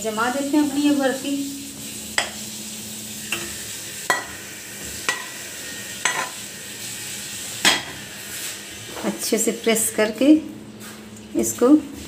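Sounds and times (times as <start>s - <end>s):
metal spoon scraping cookware: 6.0s - 6.4s.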